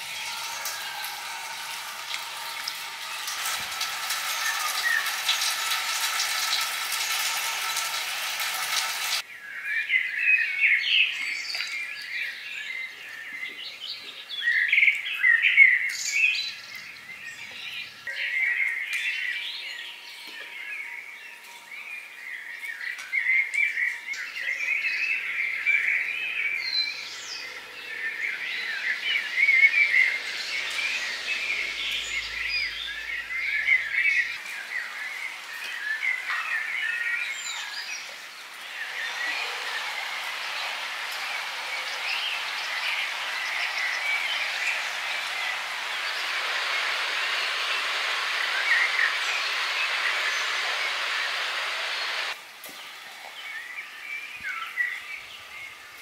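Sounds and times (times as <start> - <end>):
steady hiss of ambience: 0.0 - 56.0
birds chirping and singing: 8.7 - 52.4.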